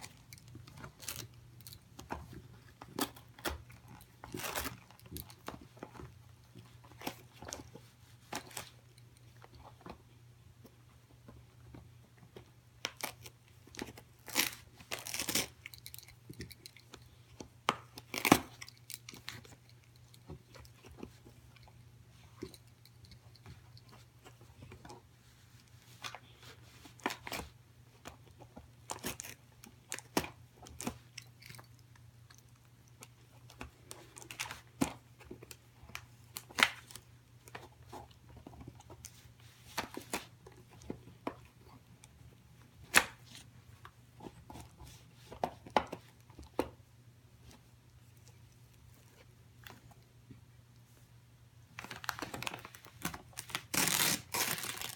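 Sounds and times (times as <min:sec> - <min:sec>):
dog tearing wrapping paper: 0:14.2 - 0:15.5, 0:51.8 - 0:54.9.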